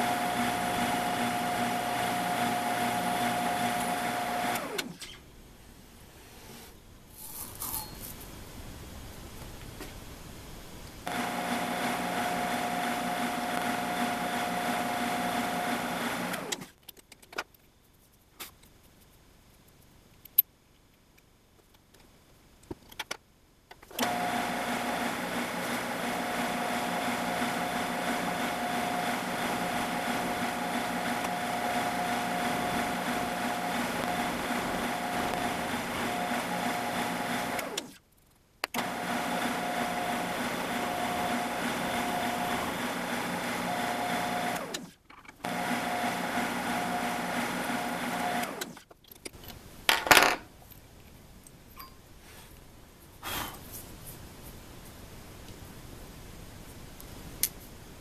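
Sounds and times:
drill press motor whining: 0.0 - 5.0, 11.1 - 16.7, 23.9 - 38.0, 38.8 - 48.8.

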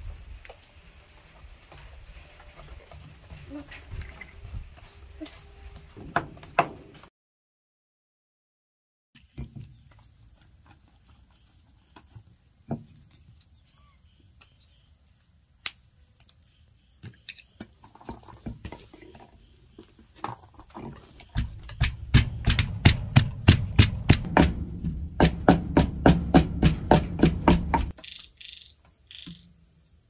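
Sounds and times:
wooden pestle pounding in mortar: 21.4 - 28.0.

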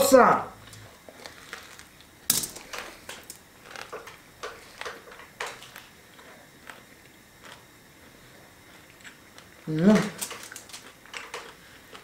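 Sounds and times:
person chewing with wet smacks: 3.7 - 9.7.

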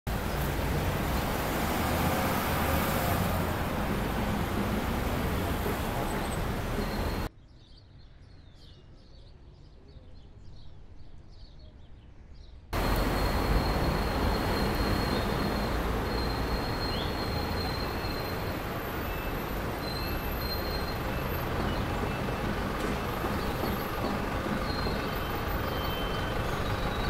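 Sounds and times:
city street traffic: 0.1 - 7.3, 12.7 - 27.0
small birds chirping: 3.7 - 27.0.

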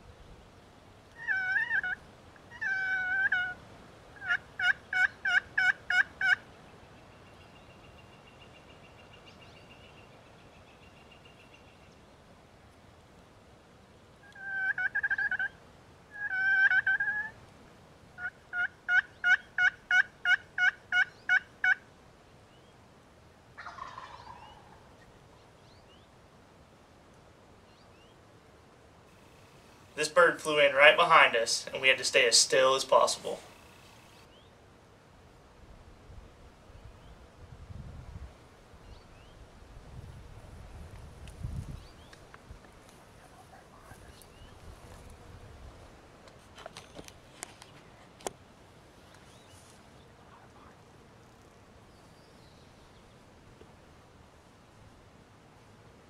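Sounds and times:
wild turkey calling: 1.1 - 10.0, 14.2 - 17.4, 18.2 - 21.8, 23.6 - 25.2.

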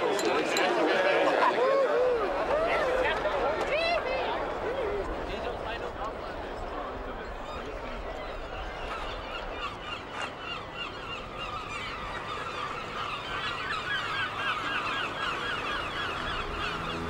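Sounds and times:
flock of birds calling: 6.9 - 17.0.

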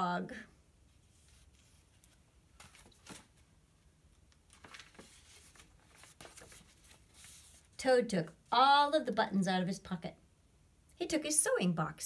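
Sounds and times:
book pages rustling and turning: 0.9 - 7.8.

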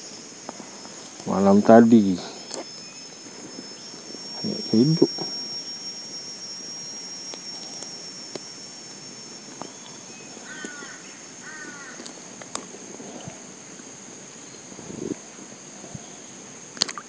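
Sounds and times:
insects droning: 0.0 - 17.0
bird chirping: 0.9 - 12.2.

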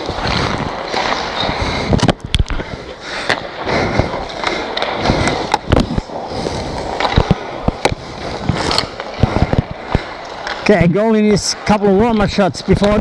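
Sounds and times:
ice skates scraping ice: 0.0 - 13.0.

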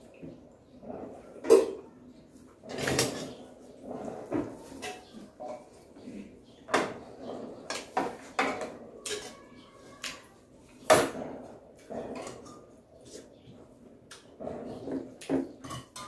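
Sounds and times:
metal spoon clinking on plates: 7.7 - 9.4, 15.6 - 16.0.

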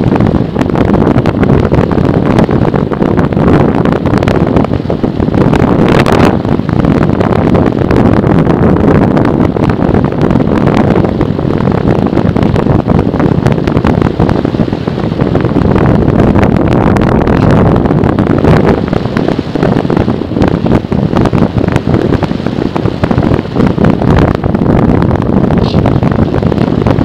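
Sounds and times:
wind rush buffeting camera: 0.0 - 27.0.

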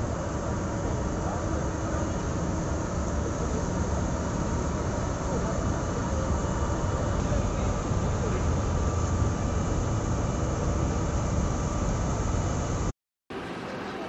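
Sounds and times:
faint voices: 0.0 - 12.2
vehicle engines rumbling: 0.0 - 12.9
street noise: 0.0 - 14.0.

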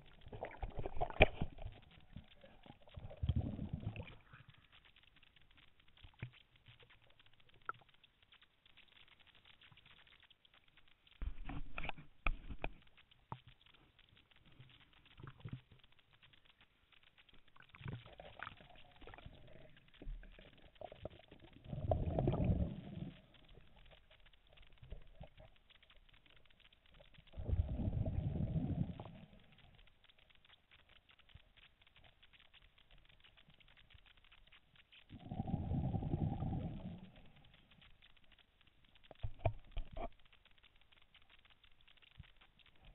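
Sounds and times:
underwater breath bubbling: 0.0 - 4.5, 18.0 - 23.6, 27.3 - 29.4, 35.1 - 37.6
faint crackling: 0.0 - 42.9.

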